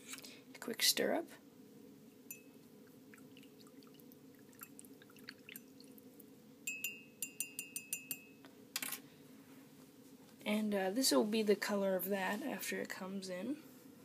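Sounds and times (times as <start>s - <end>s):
low steady hum: 0.0s - 14.0s
spoon clinking against cup: 2.3s - 2.6s, 6.7s - 8.4s.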